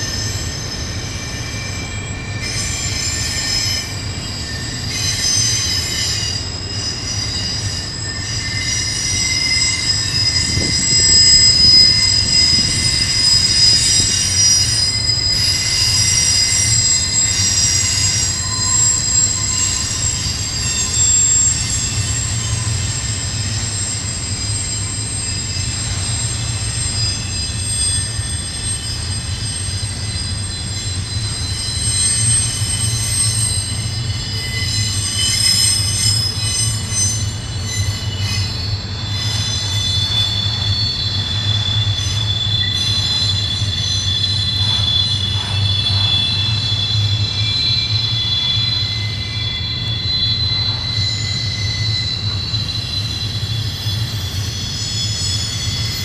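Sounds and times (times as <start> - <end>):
train wheels squealing against rail: 0.0 - 56.0
wheels rumbling on track: 9.0 - 29.4.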